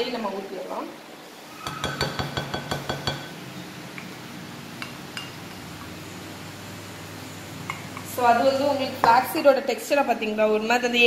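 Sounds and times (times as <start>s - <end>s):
spoon clinking against glass bowl: 1.7s - 3.3s.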